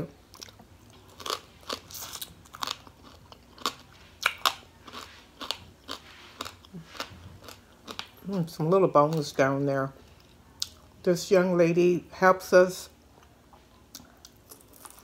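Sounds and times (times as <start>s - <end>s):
crunchy chewing: 0.3s - 8.3s, 13.2s - 15.0s.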